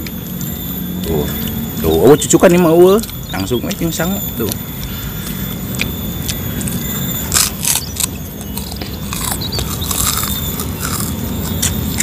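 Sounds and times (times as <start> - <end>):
people chewing crunchy food: 0.0 - 12.0.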